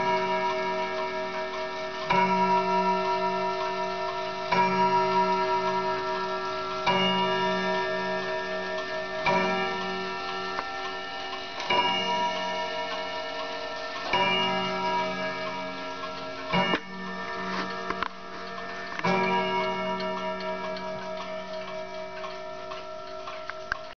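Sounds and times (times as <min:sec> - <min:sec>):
clock striking: 0:00.0 - 0:23.9
clocks ticking: 0:00.0 - 0:23.9.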